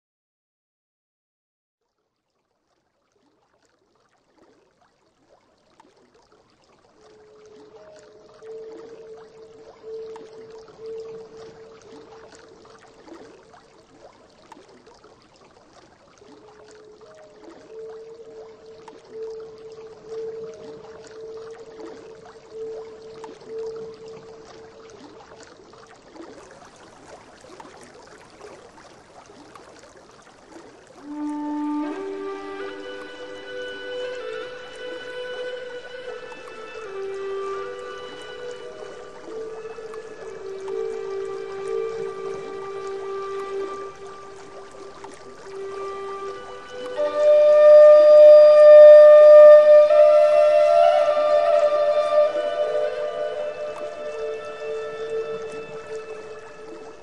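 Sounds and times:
stream babbling over rocks: 7.0 - 57.0
flute held note: 31.0 - 57.0.

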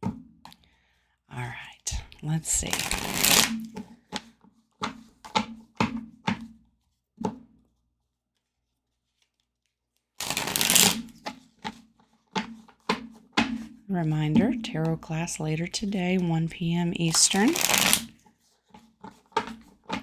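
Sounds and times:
cards shuffled by hand: 2.5 - 5.5, 7.7 - 13.2, 16.9 - 20.0
card riffle shuffle: 10.2 - 11.8, 17.1 - 20.0.

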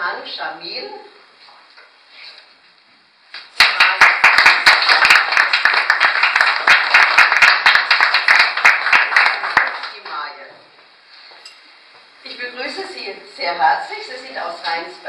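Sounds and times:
crowd applauding: 3.6 - 10.1.

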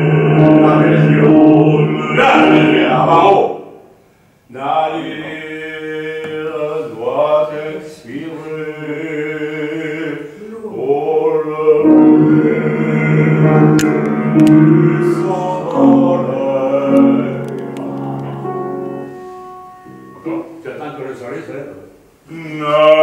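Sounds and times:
man singing operatically: 0.0 - 3.8, 4.5 - 19.1, 22.3 - 23.0
piano accompaniment: 0.0 - 3.8, 11.3 - 21.7.

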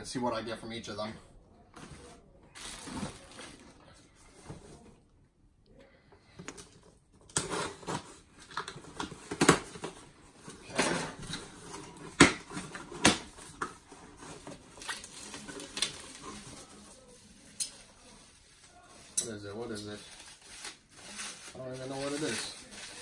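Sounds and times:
packing tape tearing: 7.3 - 10.0, 10.9 - 16.5.

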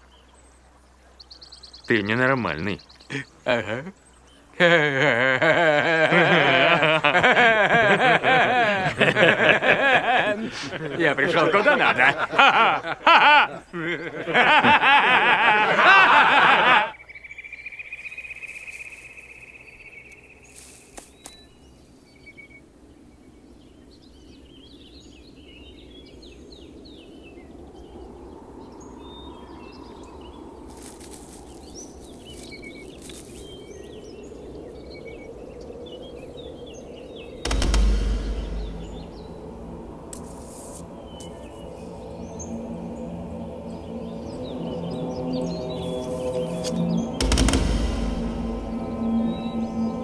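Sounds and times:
birds chirping: 0.0 - 50.0
men laughing: 3.1 - 17.0
soft low music score: 17.3 - 50.0
high held note: 37.4 - 50.0
loud low boom: 37.4 - 50.0.

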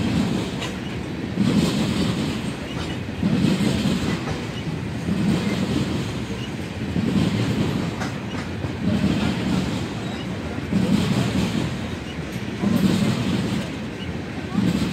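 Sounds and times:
clickety-clack over rail joints: 0.0 - 14.9
train wheels rumbling on rails: 0.0 - 14.9.

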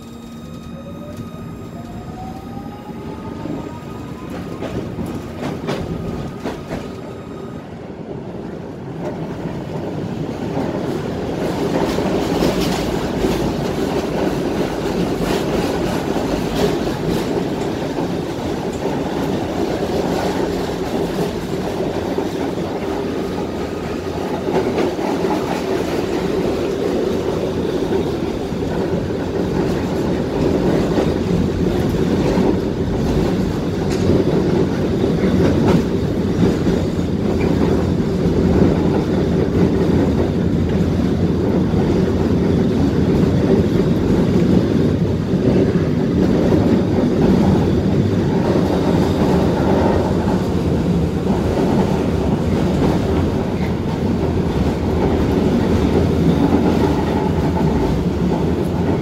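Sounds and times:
tram traction drive whining: 0.0 - 8.1.

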